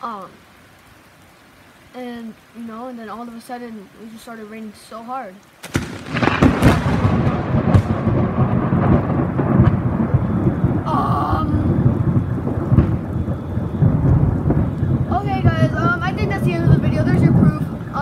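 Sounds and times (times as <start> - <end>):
heavy rain: 0.0 - 18.0
thunder crack and rumble: 5.6 - 18.0.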